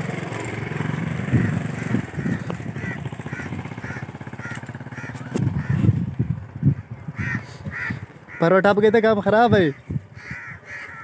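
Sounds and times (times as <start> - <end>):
small engine running: 0.0 - 6.7.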